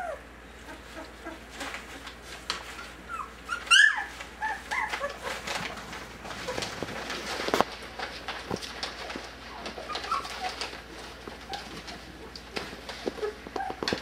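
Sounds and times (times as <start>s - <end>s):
puppies whimpering and squeaking: 0.0s - 7.6s, 8.6s - 14.0s
puppy sharp yelp: 3.1s - 5.3s.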